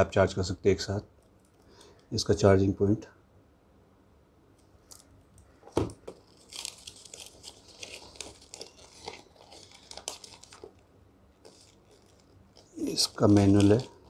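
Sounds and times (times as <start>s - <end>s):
paper crinkling and rustling: 5.6s - 14.0s.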